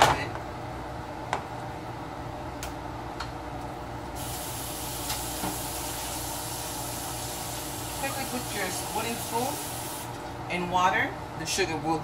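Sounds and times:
running water hiss: 0:04.2 - 0:10.2.

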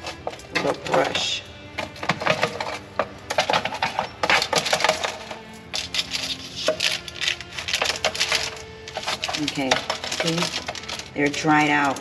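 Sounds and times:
metal spoon scraping sheet pan: 0:00.0 - 0:12.0.

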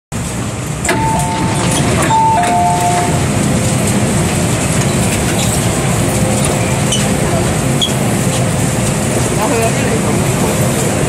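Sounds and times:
low train noise: 0:00.1 - 0:11.0
two-note door chime: 0:00.9 - 0:03.2.

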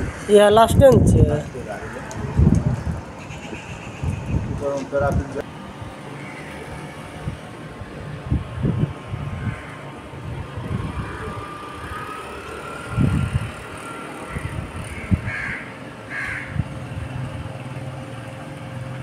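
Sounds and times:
wind buffeting microphone: 0:00.0 - 0:06.0, 0:06.7 - 0:15.6, 0:16.4 - 0:17.6
crows cawing: 0:03.2 - 0:04.4, 0:06.1 - 0:06.8, 0:09.4 - 0:09.9, 0:14.2 - 0:16.6.

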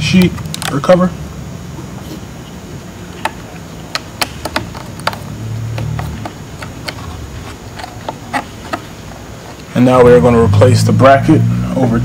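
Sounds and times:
fingers clicking laptop cover: 0:03.2 - 0:07.1.

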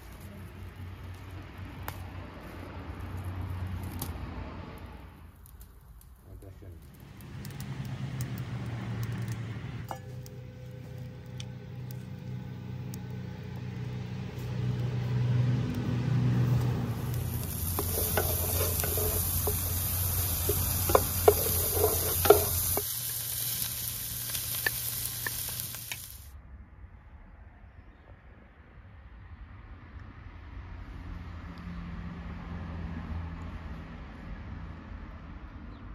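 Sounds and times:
food sizzling in hot oil: 0:16.2 - 0:26.3
wooden spatula scraping pan: 0:17.3 - 0:22.9.

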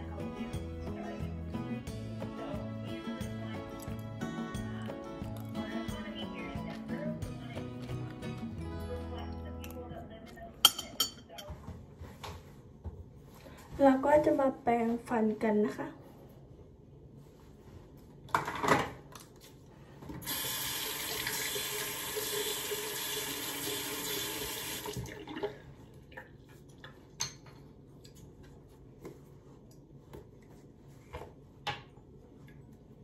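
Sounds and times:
tap water splashing into sink: 0:20.2 - 0:26.3.

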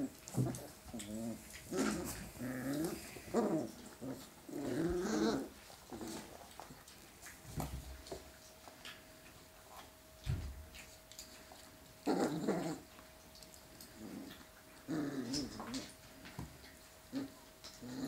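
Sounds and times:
puppies scuffling and thumping: 0:00.0 - 0:18.0.

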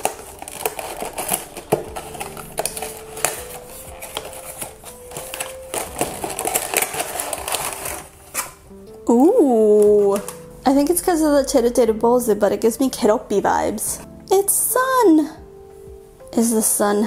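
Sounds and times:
cardboard flaps rustling: 0:00.0 - 0:08.6
plastic packaging crinkling: 0:00.0 - 0:08.8, 0:09.6 - 0:10.9.

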